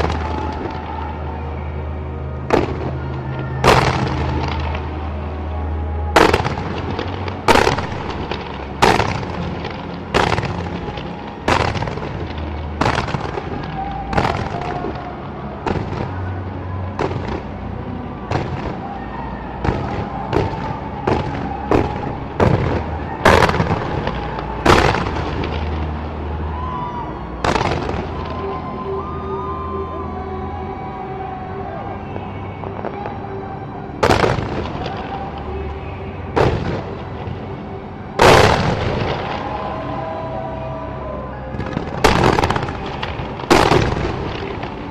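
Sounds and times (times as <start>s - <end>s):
fireworks bursting bangs: 0.0s - 1.0s, 2.5s - 5.0s, 6.1s - 16.2s, 17.0s - 17.6s, 18.3s - 19.0s, 19.6s - 26.1s, 27.4s - 28.4s, 34.0s - 35.4s, 36.3s - 37.6s, 38.2s - 40.1s, 41.5s - 44.9s.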